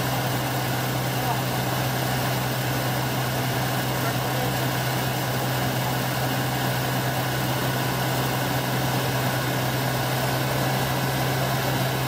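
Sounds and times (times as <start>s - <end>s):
engine running steadily: 0.0s - 12.0s.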